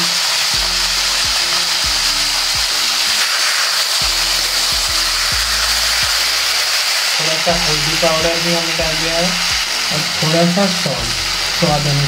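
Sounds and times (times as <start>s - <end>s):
background music: 0.0s - 12.0s
vegetables sizzling in oil: 0.0s - 12.0s.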